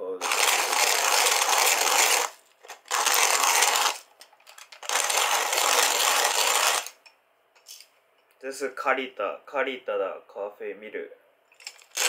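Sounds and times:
hand coffee mill grinding beans: 0:00.1 - 0:07.0, 0:11.6 - 0:12.0.

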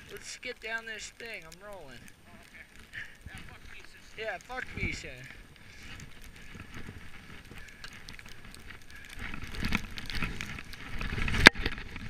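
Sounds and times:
skis hissing through powder snow: 0:03.0 - 0:07.7.

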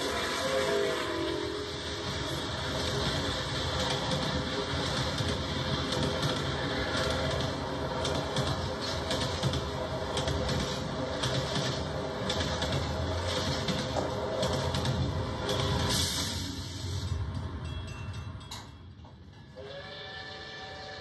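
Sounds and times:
train wheels rumbling on rails: 0:00.0 - 0:21.0
wheels clicking over track: 0:02.6 - 0:16.4.

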